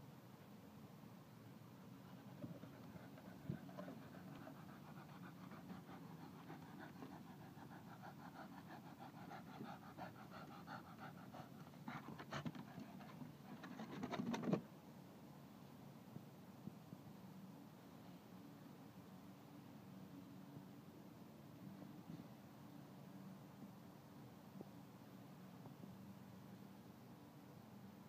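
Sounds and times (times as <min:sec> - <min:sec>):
dog panting: 0:02.0 - 0:14.5.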